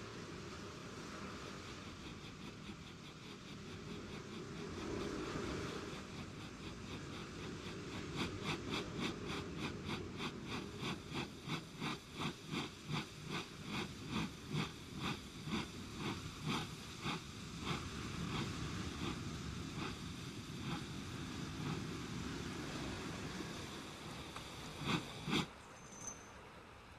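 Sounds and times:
smoking machine chugging: 1.2s - 26.1s.

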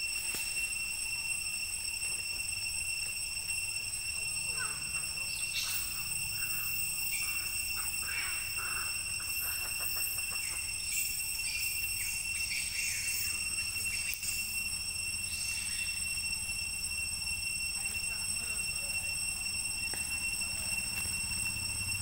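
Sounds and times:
high-pitched drone: 0.0s - 22.0s.

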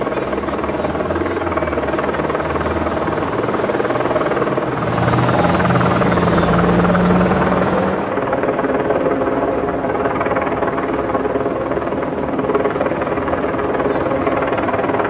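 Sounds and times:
motor droning: 1.8s - 8.3s.

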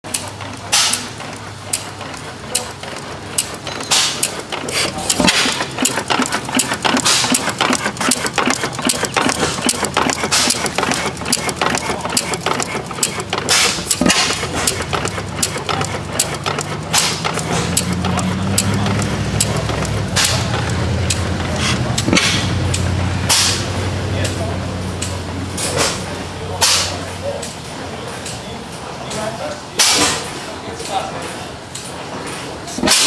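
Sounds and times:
gas engine running: 0.0s - 33.0s
rapid clicking: 0.1s - 24.4s
steady low hum: 0.1s - 32.7s
engine bang: 3.8s - 11.3s, 13.3s - 27.1s.

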